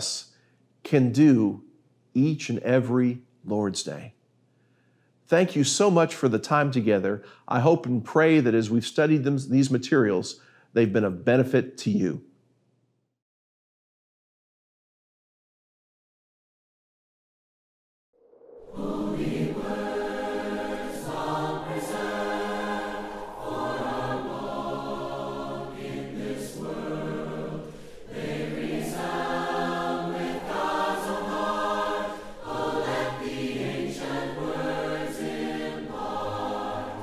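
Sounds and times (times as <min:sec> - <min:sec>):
choir singing a hymn: 0:18.6 - 0:37.0.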